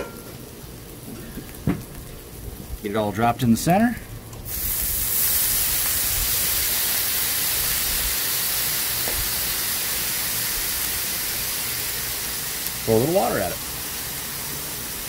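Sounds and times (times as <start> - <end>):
water hissing on hot griddle: 4.4 - 15.0.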